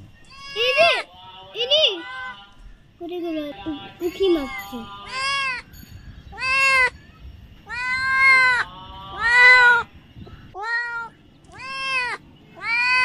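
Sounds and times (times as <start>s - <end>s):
kitten meowing loudly: 0.3s - 1.0s, 6.4s - 6.9s, 7.7s - 8.6s, 10.6s - 13.0s.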